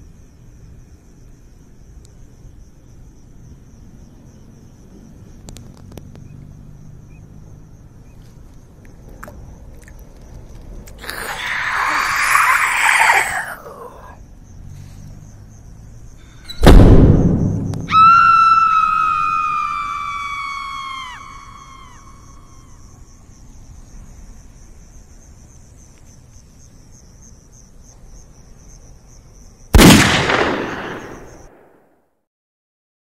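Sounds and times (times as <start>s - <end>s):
loud boom: 16.6s - 18.1s, 29.8s - 31.7s.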